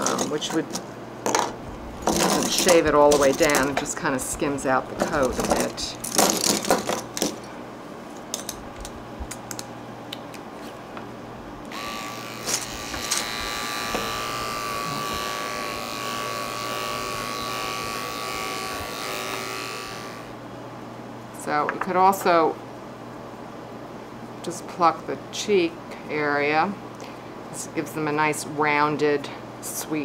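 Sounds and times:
electric clipper humming: 11.7 - 20.4.

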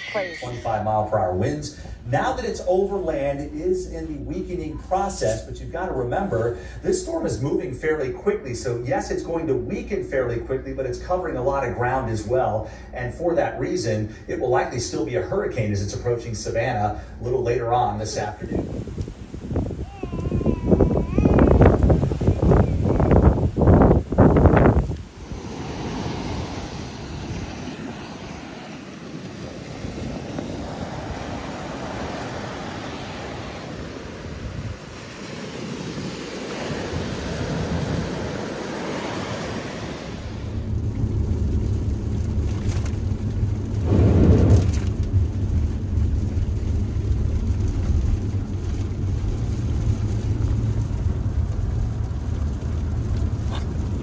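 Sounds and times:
surf breaking on the beach: 13.0 - 54.0
car engine and road noise: 16.6 - 54.0
loud rush: 25.1 - 47.5.

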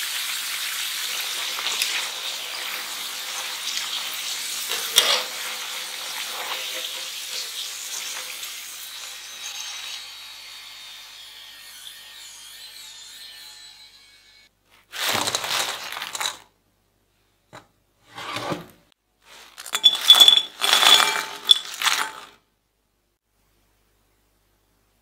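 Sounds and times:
frying oil sizzle: 0.0 - 10.6
fries clattering into glass bowl: 1.1 - 8.5, 19.6 - 22.4.

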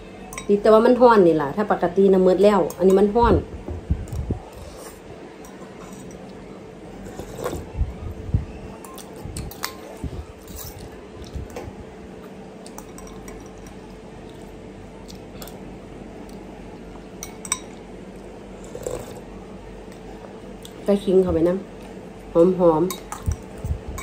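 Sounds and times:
soft eating sounds: 3.9 - 24.0
cutlery clinking on glass bowl: 12.7 - 13.8, 17.2 - 17.8.

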